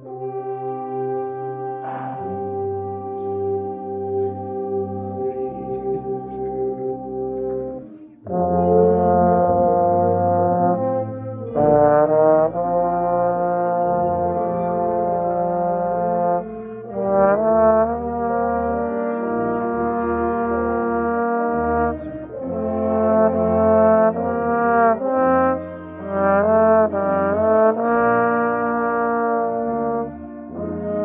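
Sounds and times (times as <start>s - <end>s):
band instruments playing: 0.0s - 31.0s
trombone held notes: 0.0s - 31.0s
player breathing: 1.8s - 2.5s.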